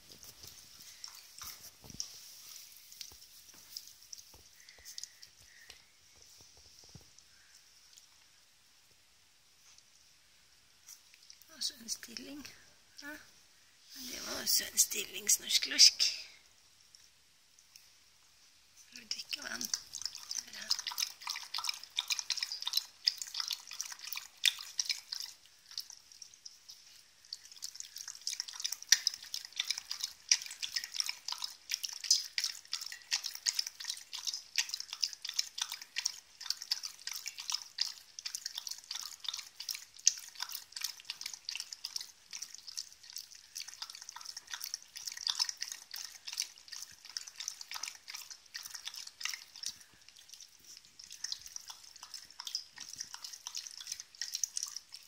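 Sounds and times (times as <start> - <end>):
dog lapping water: 0.0 - 5.7, 19.3 - 55.0.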